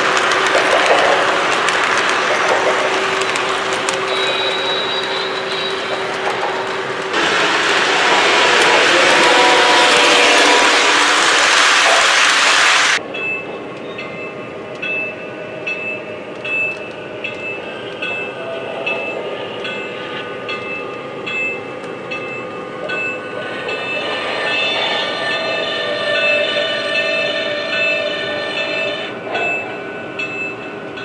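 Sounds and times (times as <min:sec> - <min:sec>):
clickety-clack wheel clicks: 0:00.0 - 0:07.2
rush of train cars passing: 0:00.0 - 0:13.2, 0:17.1 - 0:31.0.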